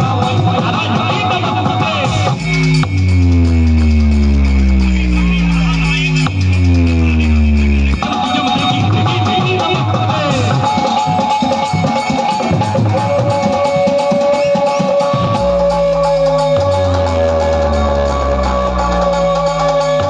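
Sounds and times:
loud dance music: 0:00.0 - 0:10.9, 0:11.5 - 0:20.0
fast drum beat: 0:00.0 - 0:20.0
deep bass notes: 0:01.7 - 0:09.2, 0:15.2 - 0:20.0.

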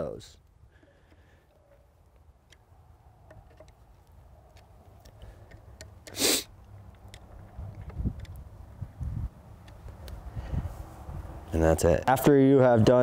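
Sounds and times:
short loud hiss: 0:06.1 - 0:06.5
screwdriver metal clicks: 0:06.9 - 0:08.4.

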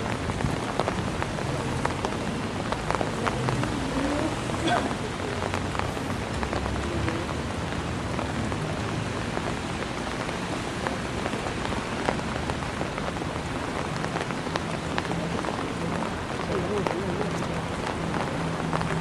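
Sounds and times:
rain on wet paving: 0:00.0 - 0:19.0.

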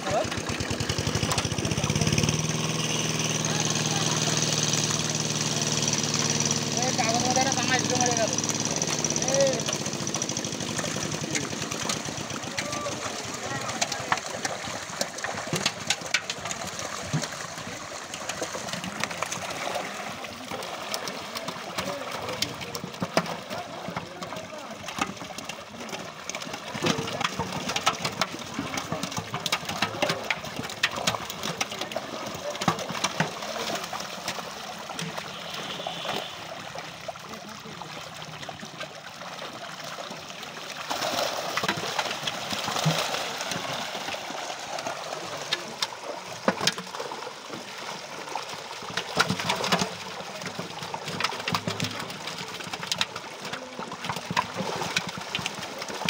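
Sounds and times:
fish slapping against water: 0:00.0 - 0:56.0
fish thrashing and splashing in water: 0:00.0 - 0:56.0.

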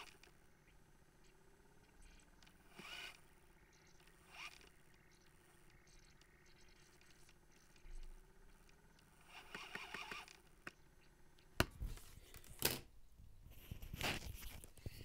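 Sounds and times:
faint mechanism whirring: 0:00.0 - 0:15.0
sharp mechanism clicks: 0:01.3 - 0:11.5.

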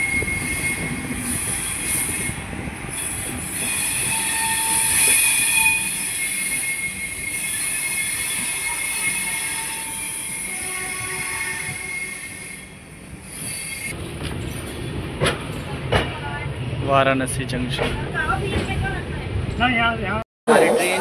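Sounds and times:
high-pitched wheel squeal: 0:00.0 - 0:14.0
train wheels rumbling on rails: 0:00.0 - 0:19.6.

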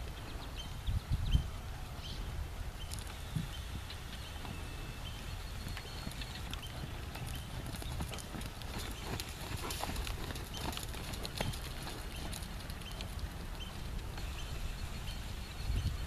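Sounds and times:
soft hoofbeats on sand: 0:03.3 - 0:16.0.

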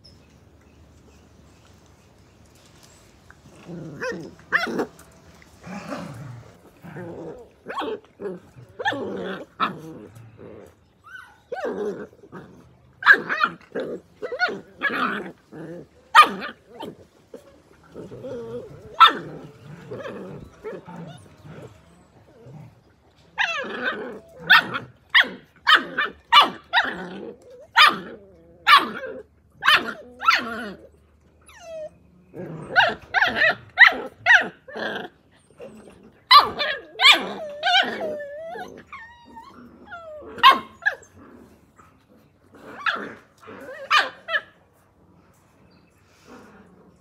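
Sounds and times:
puppies yapping: 0:02.6 - 0:44.8
puppy whining: 0:10.5 - 0:12.6, 0:14.2 - 0:25.3, 0:26.0 - 0:42.1.

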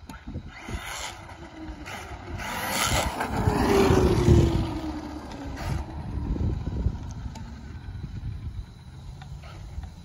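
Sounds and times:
rc truck motor whine: 0:00.0 - 0:10.0
tyre noise on wet pavement: 0:00.8 - 0:06.3.

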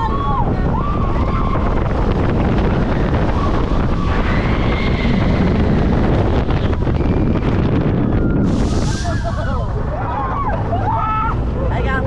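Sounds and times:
roller coaster rushing on track: 0:00.0 - 0:12.0
wind buffeting microphone: 0:00.0 - 0:12.0.

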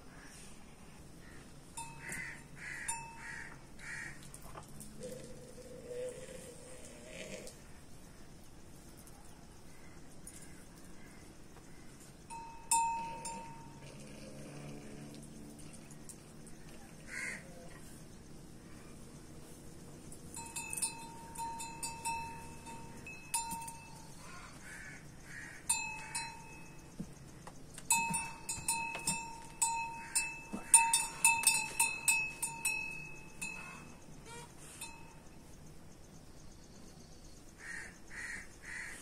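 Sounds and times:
metal livestock bell clanking: 0:01.8 - 0:03.3, 0:12.3 - 0:14.2, 0:20.1 - 0:24.2, 0:25.7 - 0:27.0, 0:27.8 - 0:34.0.

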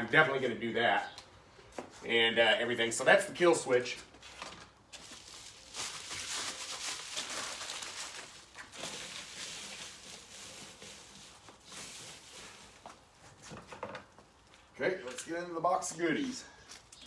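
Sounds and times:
packaging rustling: 0:04.2 - 0:13.2.

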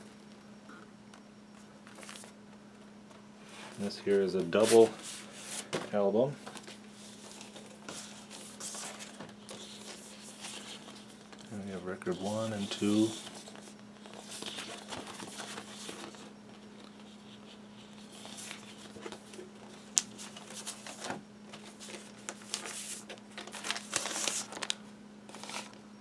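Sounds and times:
cardboard and paper rustling: 0:01.9 - 0:02.4, 0:03.5 - 0:25.8.

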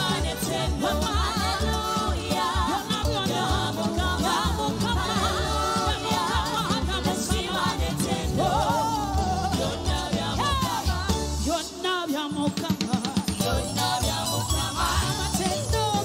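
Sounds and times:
pulsing bass beat: 0:00.0 - 0:11.5
gospel singing with band: 0:00.0 - 0:16.0.

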